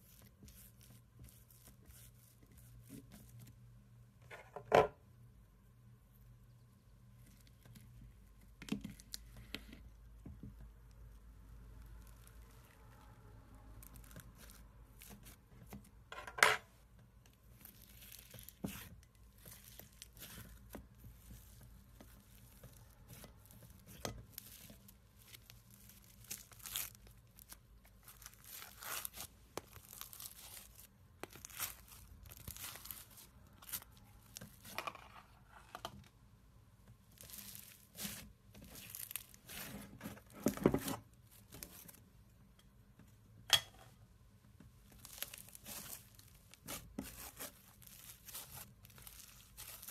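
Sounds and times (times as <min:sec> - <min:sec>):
crunchy slime crackling and popping: 0:13.7 - 0:15.4, 0:17.5 - 0:34.8, 0:37.1 - 0:39.8, 0:44.9 - 0:49.9.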